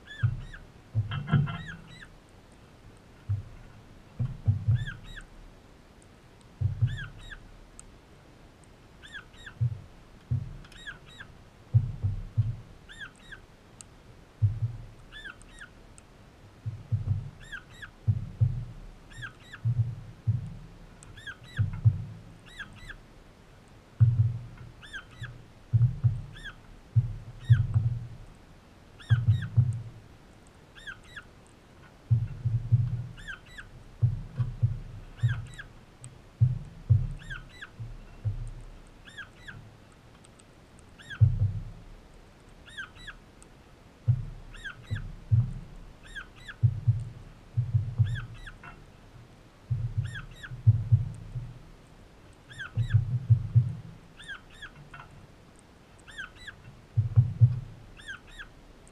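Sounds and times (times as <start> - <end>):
bird chirping: 0.0 - 2.2, 4.2 - 5.3, 6.6 - 7.5, 9.0 - 9.8, 10.6 - 11.4, 12.3 - 13.5, 14.4 - 15.8, 16.6 - 20.4, 21.0 - 23.1, 24.0 - 28.1, 29.0 - 29.9, 30.7 - 35.8, 36.9 - 39.7, 40.3 - 41.6, 42.6 - 43.3, 44.4 - 48.9, 49.7 - 51.2, 52.4 - 55.2, 56.0 - 58.6.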